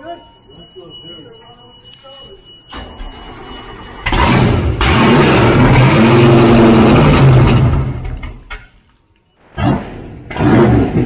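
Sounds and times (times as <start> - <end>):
boat engine revving: 4.0 - 8.1.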